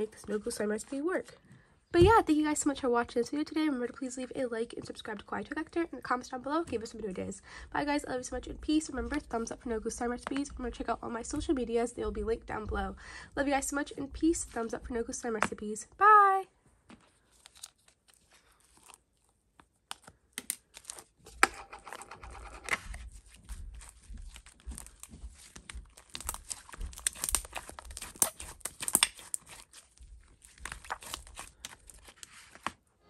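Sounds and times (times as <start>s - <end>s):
slime crackling and clicking: 25.9s - 32.2s.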